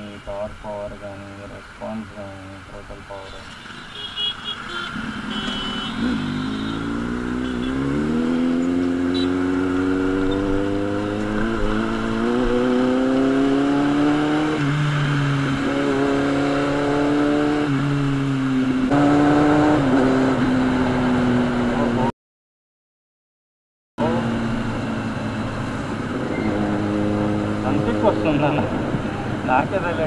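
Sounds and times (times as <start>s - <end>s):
motorcycle engine accelerating: 5.0s - 22.1s, 24.0s - 29.8s.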